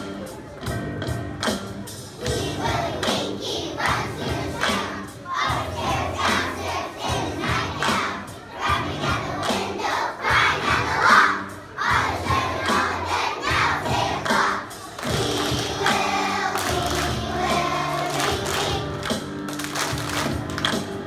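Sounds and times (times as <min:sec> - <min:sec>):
recorded music: 0:00.0 - 0:21.0
children singing loudly: 0:02.2 - 0:19.0.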